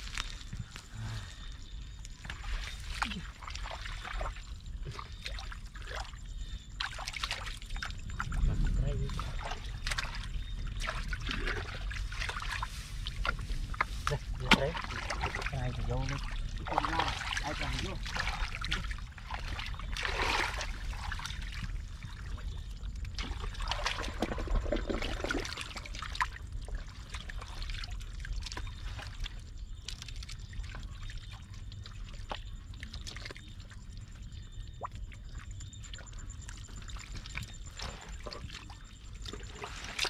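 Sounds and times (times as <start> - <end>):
water pouring and splashing: 6.8 - 22.5, 23.1 - 33.8, 36.7 - 40.0
low rumble: 7.6 - 31.9.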